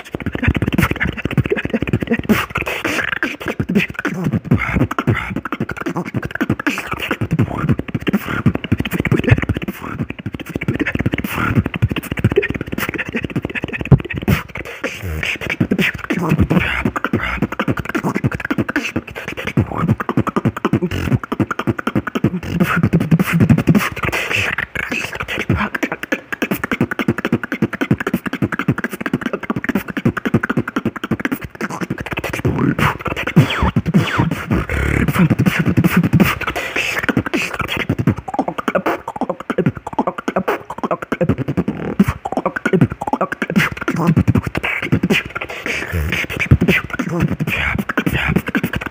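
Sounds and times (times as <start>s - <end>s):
beatboxing: 0.0s - 48.9s.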